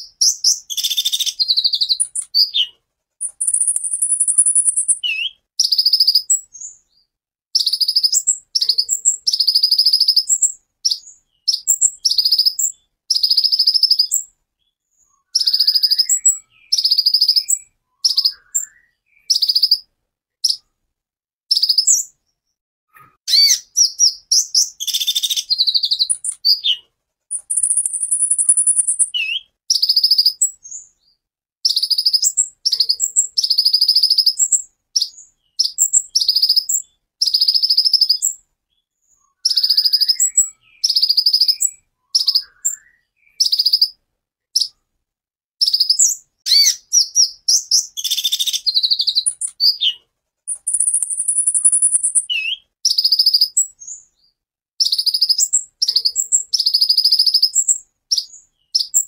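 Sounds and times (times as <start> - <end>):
bird singing high trills: 0.2 - 6.7, 15.1 - 19.9, 23.3 - 30.8, 39.3 - 44.0, 45.6 - 54.0.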